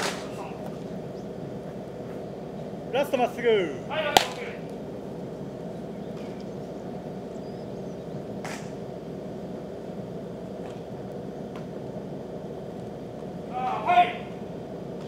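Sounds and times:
low background hum: 0.0 - 15.0
ball popping into catcher's mitt: 4.2 - 4.4
ball smacking into glove: 4.2 - 4.4.

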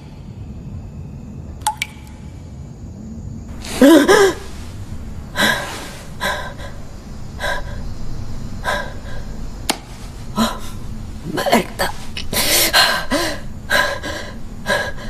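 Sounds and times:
woman breathing hard: 3.6 - 11.2, 11.8 - 15.0.

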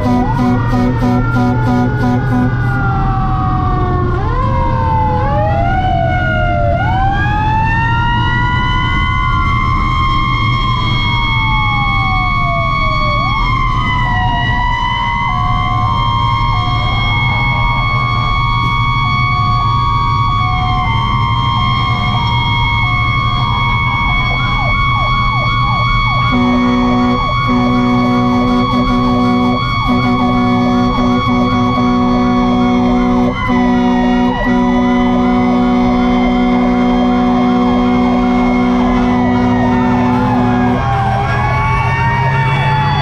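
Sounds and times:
air horns blaring: 0.0 - 3.4, 25.5 - 43.0
engine and road rumble: 0.0 - 43.0
fire engine siren: 0.0 - 43.0.

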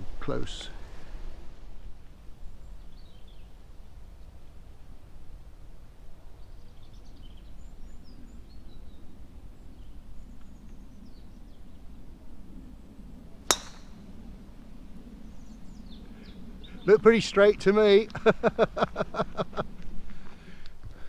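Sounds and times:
birds chirping: 6.3 - 19.6
golf club striking ball: 13.5 - 14.2.

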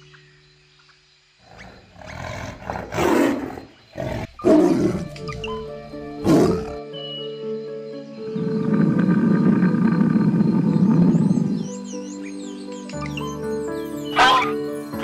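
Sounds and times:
animal growling calls: 1.4 - 6.8, 8.3 - 11.7, 14.1 - 14.6
background music: 4.0 - 15.0.

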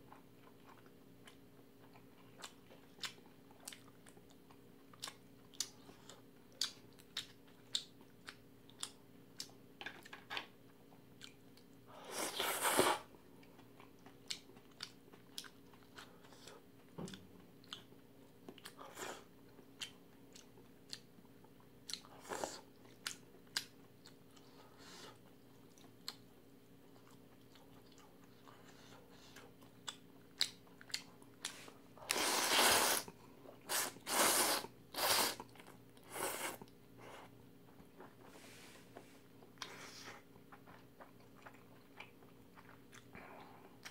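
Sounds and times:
close chewing with wet mouth clicks: 0.1 - 10.1, 13.4 - 24.6, 25.2 - 31.6, 39.4 - 43.2
noodle slurping: 32.0 - 35.4.

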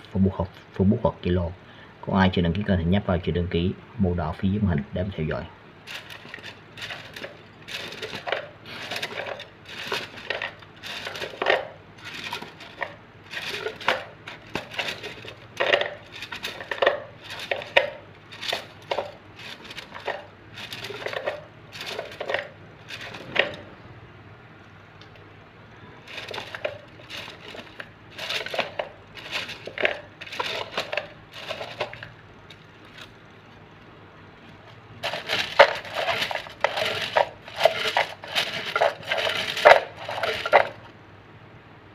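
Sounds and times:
wooden sticks rattling: 5.8 - 23.8, 26.0 - 40.9.

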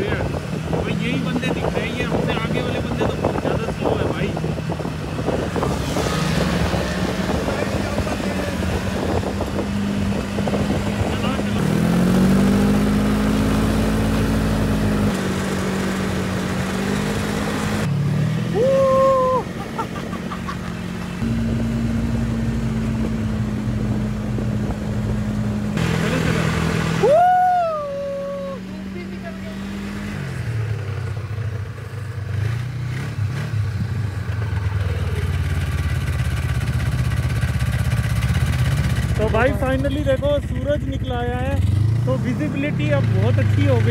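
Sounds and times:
snowmobile engine running: 0.0 - 29.8, 34.4 - 41.5.

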